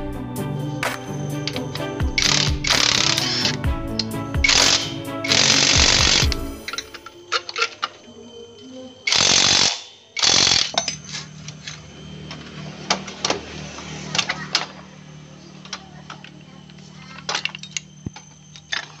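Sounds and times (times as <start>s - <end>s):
impact wrench hammering: 0.8s - 6.6s
metal parts clinking: 9.1s - 11.8s, 15.6s - 19.0s.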